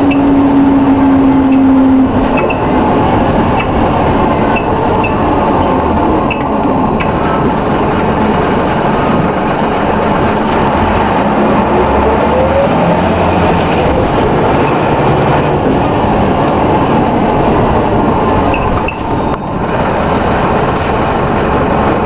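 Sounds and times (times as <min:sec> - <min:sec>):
bus diesel engine: 0:00.0 - 0:22.0
road noise: 0:00.0 - 0:22.0
engine whine rising in pitch: 0:09.8 - 0:19.5.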